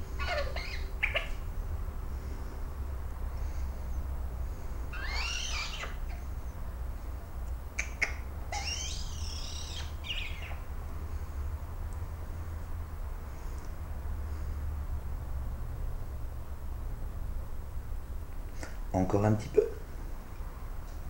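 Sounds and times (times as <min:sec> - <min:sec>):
steady low hum: 0:00.0 - 0:21.0
magpie chick begging calls: 0:00.1 - 0:01.5, 0:04.9 - 0:06.2, 0:07.8 - 0:10.6.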